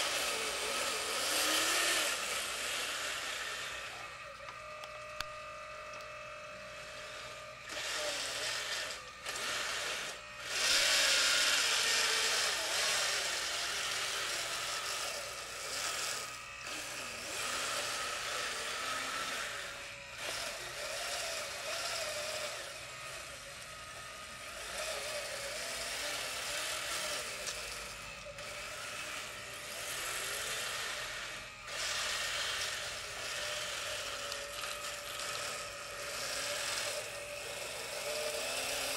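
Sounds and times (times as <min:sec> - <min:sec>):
small electric motors whining: 0:00.0 - 0:38.9.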